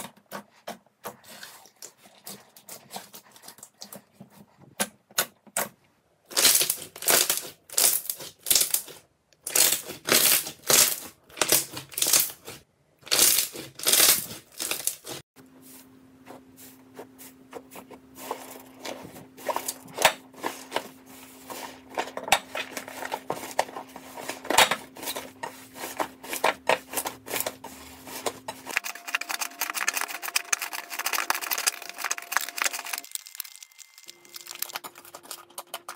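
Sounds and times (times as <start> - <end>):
hands squeezing slime: 28.7 - 35.4.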